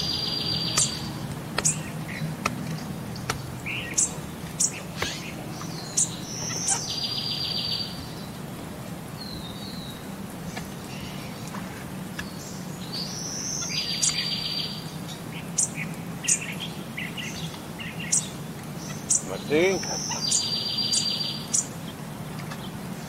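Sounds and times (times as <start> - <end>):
buzzy trilled bird calls: 0.0 - 8.0, 12.3 - 14.8, 15.4 - 21.8
birds chirping: 0.0 - 23.0
steady low background hum: 0.0 - 23.0.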